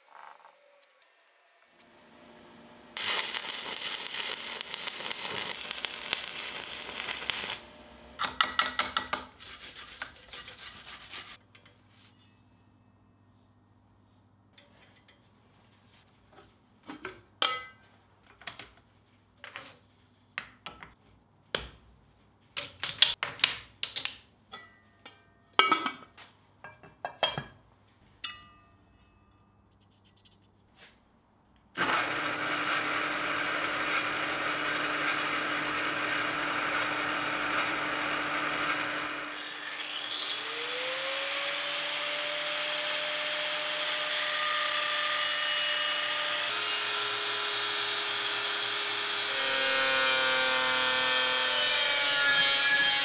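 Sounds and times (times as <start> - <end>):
angle grinder whine: 0.0 - 8.2, 31.8 - 53.0.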